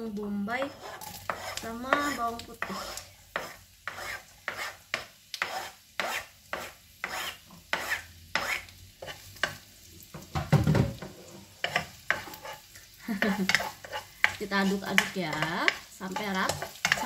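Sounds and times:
light sizzling: 0.0 - 17.0
spoon scraping cutting board: 0.6 - 9.3, 11.6 - 12.6, 13.2 - 17.0
spoon knocking in pan: 13.2 - 17.0.

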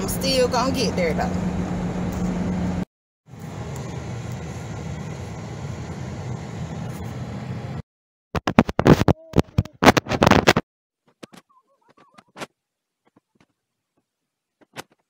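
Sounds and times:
car road and engine noise: 0.0 - 7.8
phone being handled: 8.4 - 13.6.

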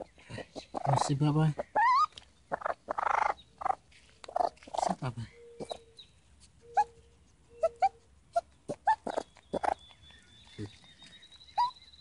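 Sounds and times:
baby raccoon chirping: 0.0 - 12.0.

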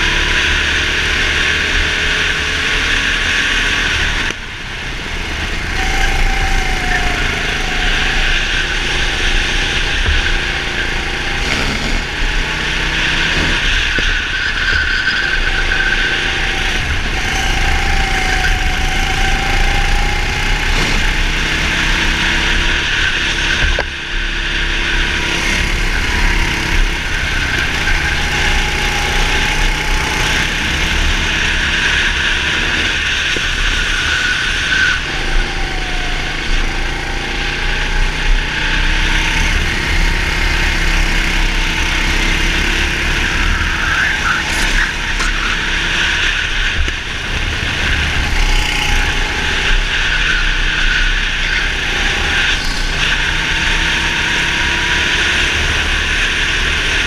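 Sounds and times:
go-kart engine racing: 0.0 - 57.0
steady rushing noise: 2.8 - 34.7.

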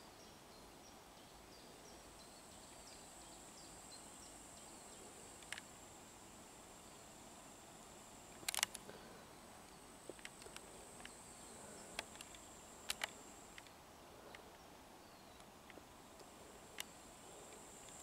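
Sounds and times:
sharp clicks and ticks: 8.4 - 8.8, 12.0 - 13.7.

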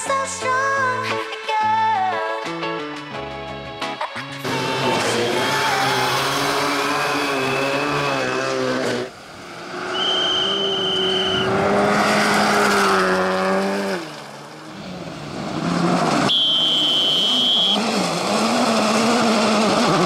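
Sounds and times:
rally car engine revving: 4.2 - 20.0
car approaching: 4.3 - 20.0
rally car accelerating on gravel: 4.4 - 20.0
high steady whine: 16.3 - 17.8.

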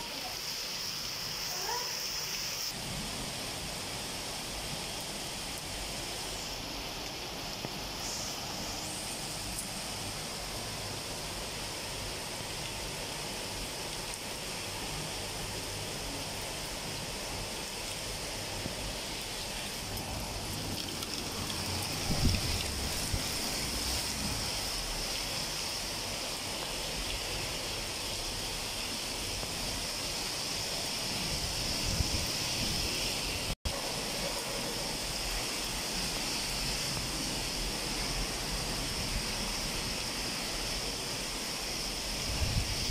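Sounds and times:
heavy rain pouring: 0.0 - 42.9.

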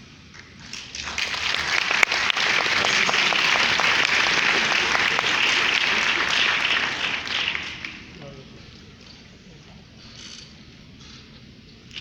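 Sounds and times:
audience applause: 0.4 - 8.2.

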